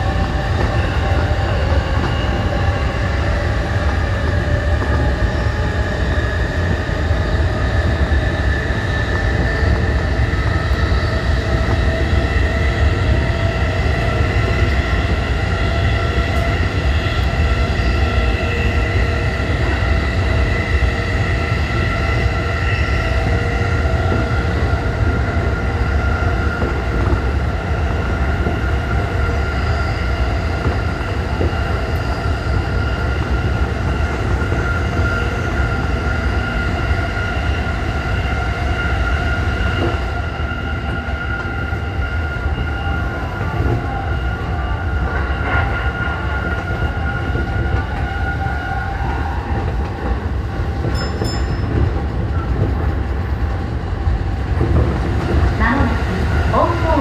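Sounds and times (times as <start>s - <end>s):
electric train whine: 0.0s - 57.0s.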